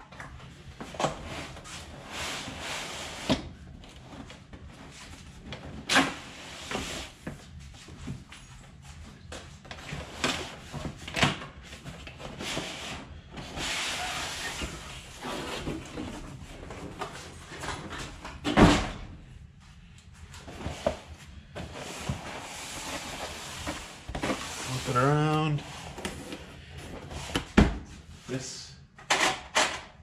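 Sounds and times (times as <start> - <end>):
cardboard boxes scraping: 12.3 - 17.4, 20.4 - 27.5.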